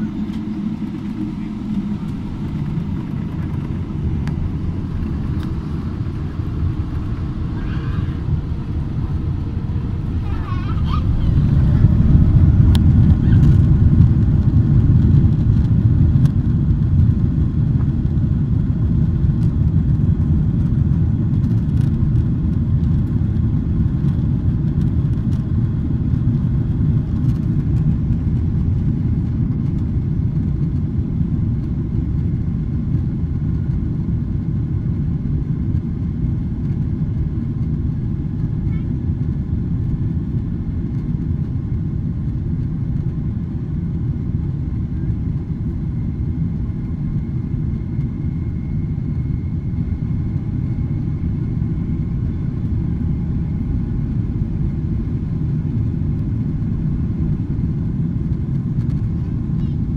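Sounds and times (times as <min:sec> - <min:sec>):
jet engines rumbling in cabin: 0:00.0 - 0:59.9.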